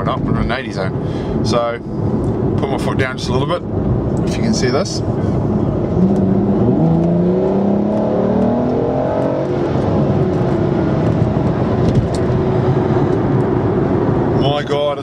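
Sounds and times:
road noise: 0.0 - 15.0
car engine accelerating: 5.4 - 14.4.

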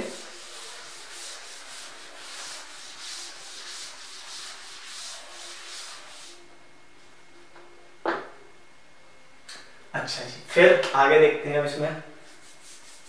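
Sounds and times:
duster rubbing chalkboard: 0.0 - 6.4, 12.2 - 13.0.

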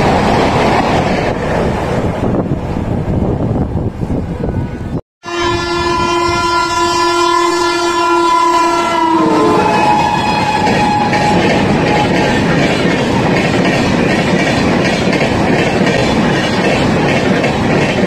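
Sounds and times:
train rumbling at speed: 0.0 - 18.0
locomotive air horn: 5.2 - 12.5.

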